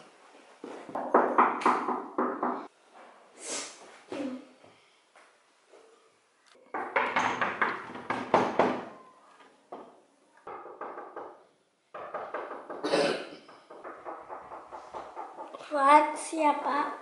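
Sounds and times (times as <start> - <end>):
rapid knocking on door: 1.0 - 2.7, 6.7 - 8.9, 10.5 - 12.9, 13.5 - 15.6.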